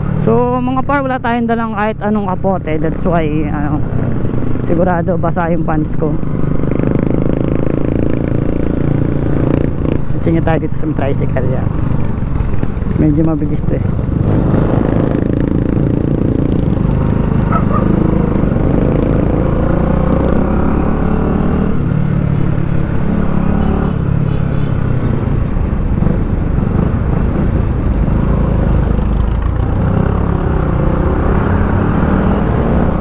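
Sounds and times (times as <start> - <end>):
motorcycle engine running: 6.3 - 25.2.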